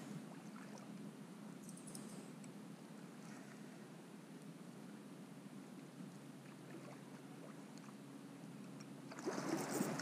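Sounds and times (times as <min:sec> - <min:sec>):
water lapping: 0:09.1 - 0:10.0.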